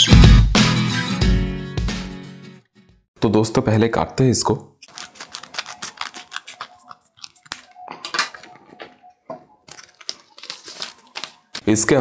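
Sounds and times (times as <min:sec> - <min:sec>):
scissors snipping paper: 0:04.8 - 0:08.5, 0:09.7 - 0:11.8
paper rustling: 0:04.8 - 0:09.0, 0:09.6 - 0:12.0.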